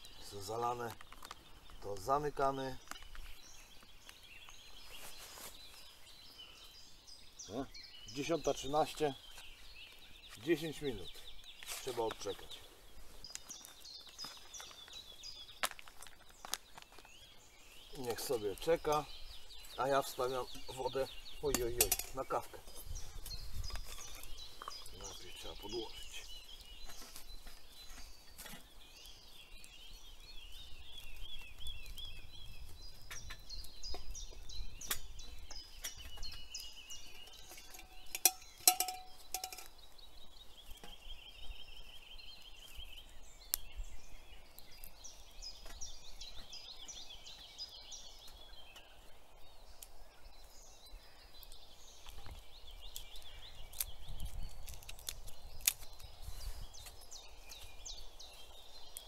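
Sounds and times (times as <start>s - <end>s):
songbirds chirping and trilling: 0.0s - 59.0s
metal mug clinking: 37.6s - 39.7s
small clicks and snaps: 43.5s - 43.7s, 51.4s - 56.1s.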